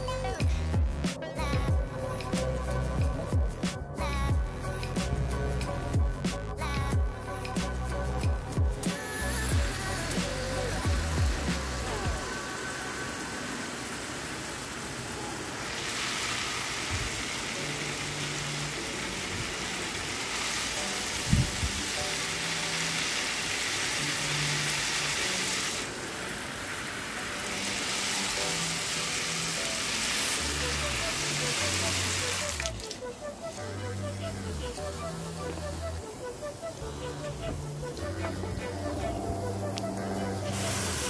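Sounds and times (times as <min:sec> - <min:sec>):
soft background music: 0:00.0 - 0:41.0
steady dense hiss: 0:01.0 - 0:41.0.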